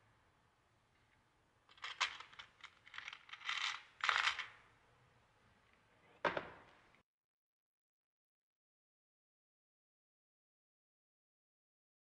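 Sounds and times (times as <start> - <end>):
small metal parts clinking: 1.7 - 4.6.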